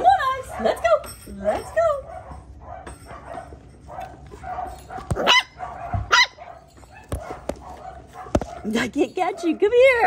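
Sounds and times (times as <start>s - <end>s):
puppy barking: 0.2s - 1.0s, 2.0s - 10.0s.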